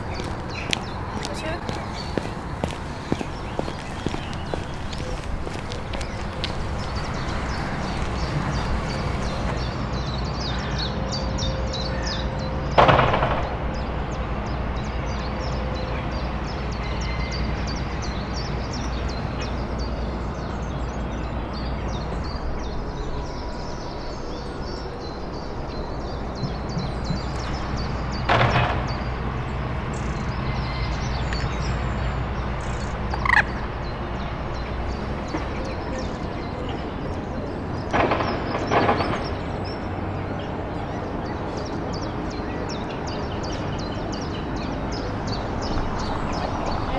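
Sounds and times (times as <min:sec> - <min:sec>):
loud knocks: 0:12.8 - 0:13.7, 0:28.2 - 0:29.2, 0:37.9 - 0:39.6.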